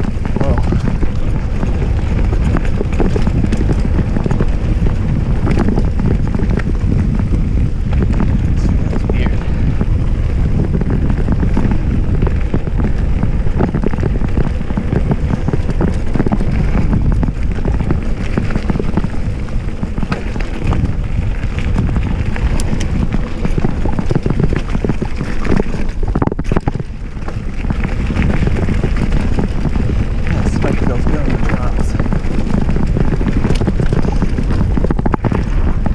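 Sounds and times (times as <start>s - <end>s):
bike rattling clicks: 0.0s - 35.9s
tyres rolling over dirt: 0.0s - 35.9s
wind rushing over microphone: 0.0s - 35.9s.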